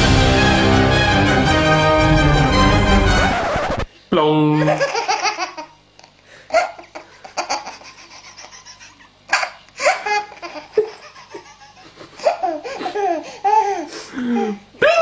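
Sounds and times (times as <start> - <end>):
baby laughing: 4.6 - 5.8, 6.5 - 14.7.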